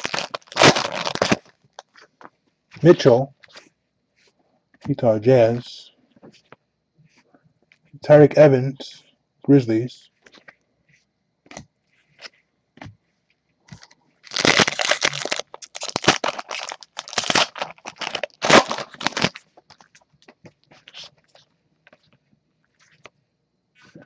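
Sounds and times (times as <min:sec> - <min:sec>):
foil wrapper crinkling and tearing: 0:00.0 - 0:02.2, 0:13.7 - 0:21.5.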